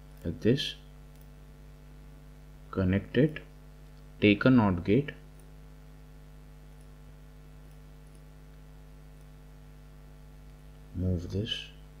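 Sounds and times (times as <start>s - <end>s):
low electrical hum: 0.0s - 12.0s
computer mouse clicks: 1.1s - 1.4s, 7.6s - 8.3s.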